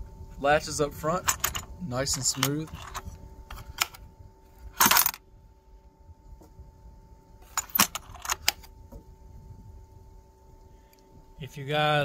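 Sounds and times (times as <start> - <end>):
faint compressor hum: 0.0 - 12.0
metal latch clicks: 2.2 - 4.0.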